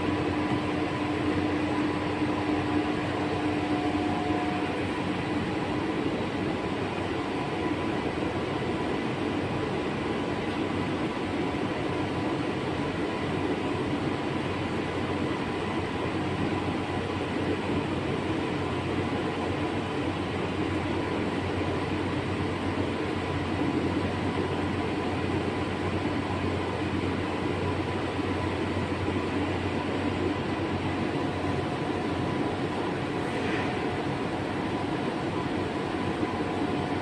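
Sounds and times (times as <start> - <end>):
faint steady hums: 0.0 - 37.0.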